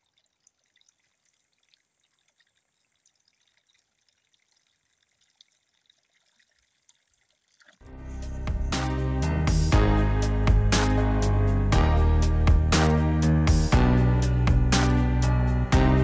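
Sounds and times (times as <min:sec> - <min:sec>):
faint water trickling into trough: 0:00.0 - 0:07.9.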